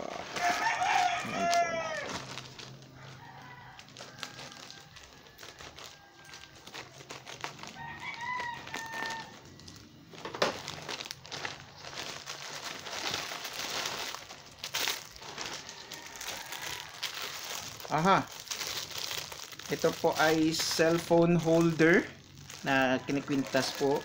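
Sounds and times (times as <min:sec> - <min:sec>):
rooster crowing: 0:00.0 - 0:06.8, 0:07.6 - 0:09.6, 0:15.3 - 0:17.6
plastic pouch crinkling: 0:00.0 - 0:24.0.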